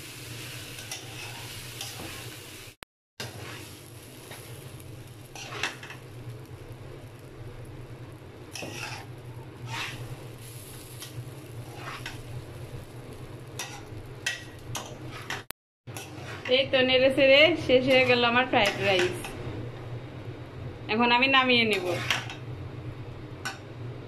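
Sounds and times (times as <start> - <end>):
spatula scraping metal pan: 0.8 - 2.2, 5.4 - 5.8, 8.5 - 10.1, 11.7 - 12.2, 13.6 - 16.6, 21.7 - 22.3.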